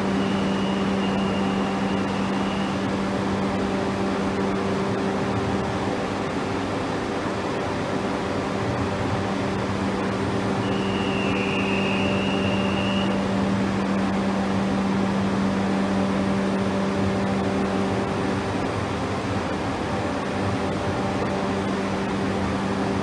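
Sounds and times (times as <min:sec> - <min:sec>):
electric train hum: 0:00.0 - 0:23.0
brief high tone: 0:00.1 - 0:02.9, 0:10.6 - 0:13.3.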